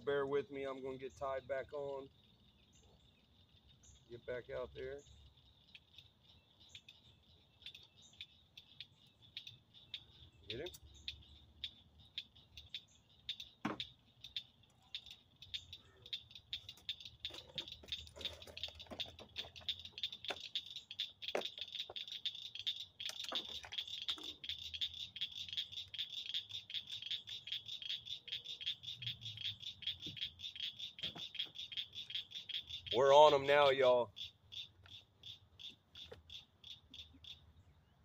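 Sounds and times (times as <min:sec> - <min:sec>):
crickets trilling: 0:00.0 - 0:37.1
sharp clicks and knocks: 0:12.1 - 0:27.5, 0:29.9 - 0:32.9.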